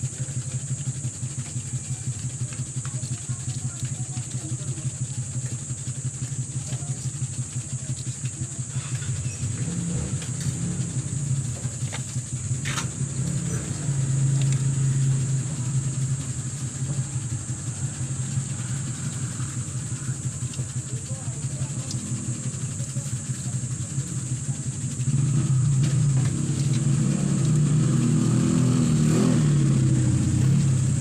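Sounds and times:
constant high whine: 0:00.0 - 0:31.0
motor engine running: 0:00.0 - 0:31.0.

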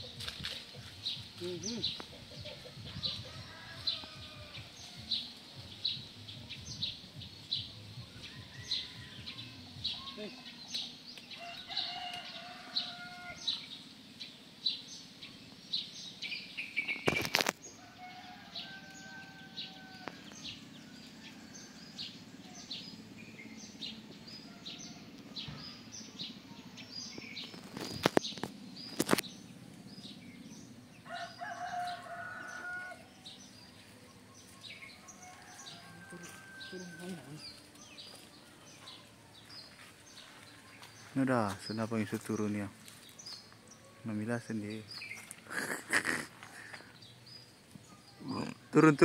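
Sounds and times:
bird chirping: 0:00.0 - 0:49.0
rooster crowing: 0:02.4 - 0:05.4, 0:08.2 - 0:09.7, 0:11.4 - 0:13.6, 0:17.8 - 0:22.7, 0:31.0 - 0:33.4, 0:34.9 - 0:37.7.

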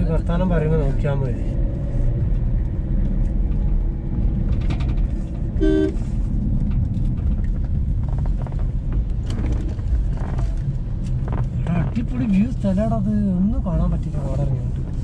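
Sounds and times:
car engine and tyres rumble: 0:00.0 - 0:15.0
car horn toot: 0:05.6 - 0:06.0.

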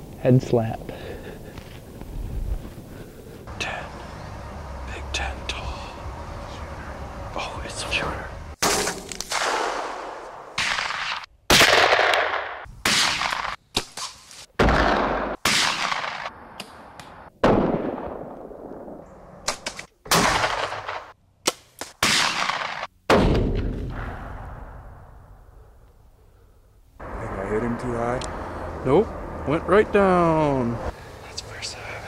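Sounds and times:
gunshots ringing out: 0:08.6 - 0:16.4, 0:17.4 - 0:24.4.

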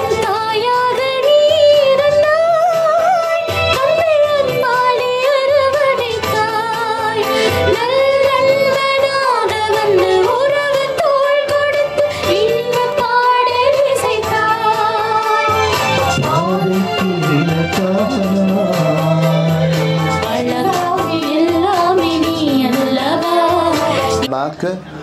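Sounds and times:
instrumental accompaniment: 0:00.0 - 0:25.0.

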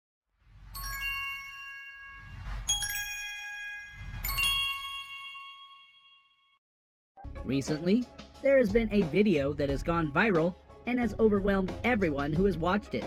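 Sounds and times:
shimmering chime strikes: 0:00.8 - 0:06.1
low swell: 0:02.0 - 0:04.7.

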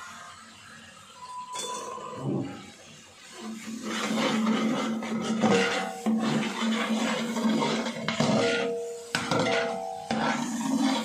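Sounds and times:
masala frying in fat: 0:02.4 - 0:11.0
metal spoon scraping a pot: 0:03.3 - 0:11.0.

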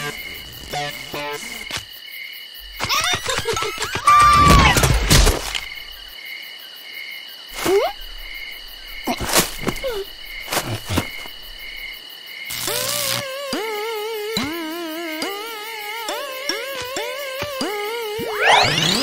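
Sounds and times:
crickets chirping: 0:00.0 - 0:19.0
swooping sound effects: 0:16.1 - 0:19.0.

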